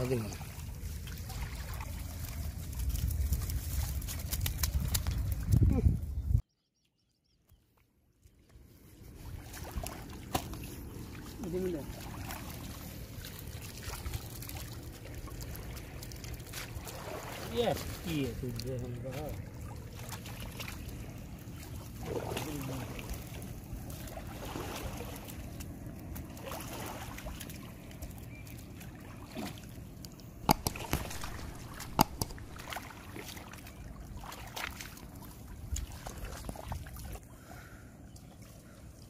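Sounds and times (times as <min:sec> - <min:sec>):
water trickling and splashing: 0:00.0 - 0:05.7, 0:08.2 - 0:39.0
sharp clicks: 0:30.5 - 0:32.6.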